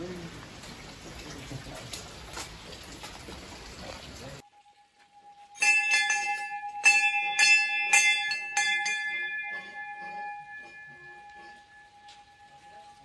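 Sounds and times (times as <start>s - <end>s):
metal bell struck ringing: 5.6s - 13.0s.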